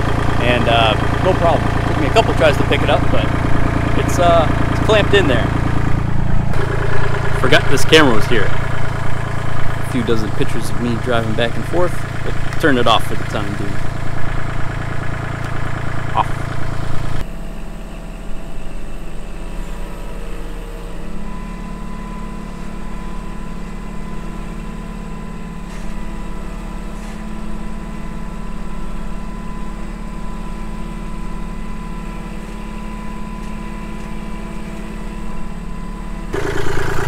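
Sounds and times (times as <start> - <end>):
tractor diesel engine running: 0.0 - 37.0.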